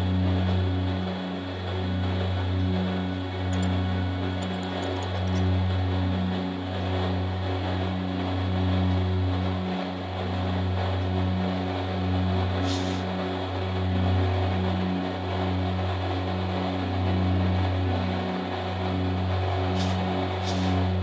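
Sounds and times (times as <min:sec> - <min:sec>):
brief hiss: 0:19.8 - 0:20.8.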